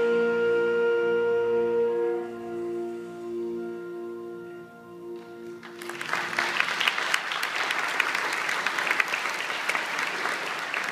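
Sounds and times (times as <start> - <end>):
saxophone holding a note: 0.0 - 5.7
audience applause: 5.4 - 10.9.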